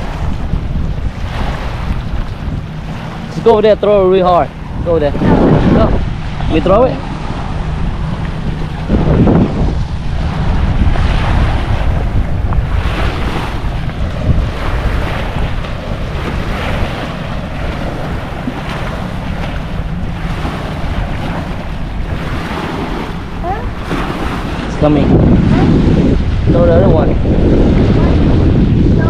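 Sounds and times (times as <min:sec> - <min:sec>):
wind buffeting microphone: 0:00.0 - 0:29.0
waves breaking on concrete: 0:12.6 - 0:26.8.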